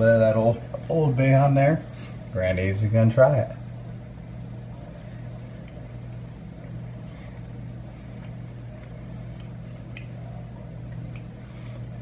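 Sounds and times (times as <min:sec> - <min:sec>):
range hood fan humming: 0:00.0 - 0:12.0
faint chewing clicks: 0:04.7 - 0:12.0.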